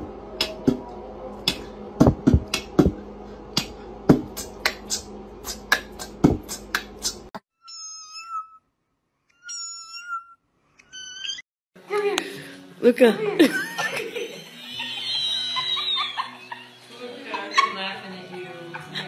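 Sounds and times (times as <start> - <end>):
steady hum: 0.0 - 7.3
short high-pitched cries: 9.3 - 11.4.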